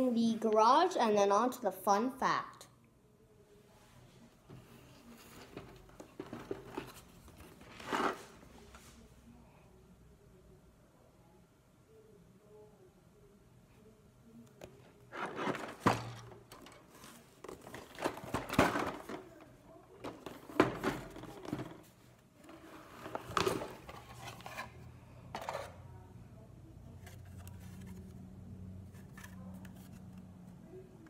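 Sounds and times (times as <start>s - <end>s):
cardboard box rustling and scraping: 15.1s - 16.2s.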